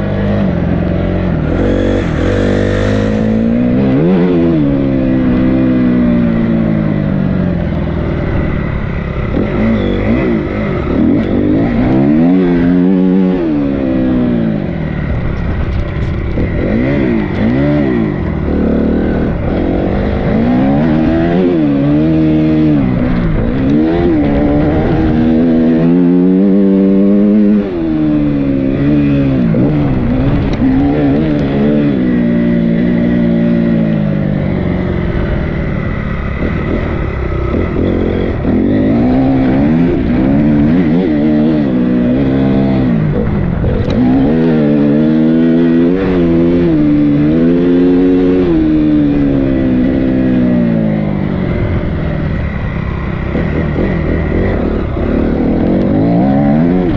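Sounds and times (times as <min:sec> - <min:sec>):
dirt bike engine revving: 0:00.0 - 0:56.9.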